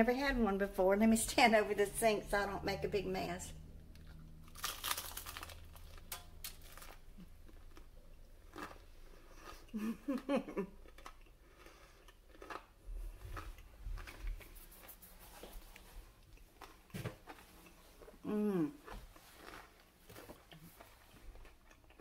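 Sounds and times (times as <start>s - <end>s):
crunchy chewing: 3.8s - 9.8s, 10.8s - 14.5s, 16.2s - 22.0s.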